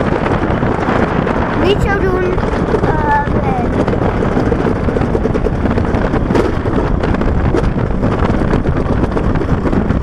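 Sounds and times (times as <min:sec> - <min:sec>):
sled knocking in track: 0:00.0 - 0:10.0
sled rumbling down metal track: 0:00.0 - 0:10.0
wind buffeting microphone: 0:00.0 - 0:10.0.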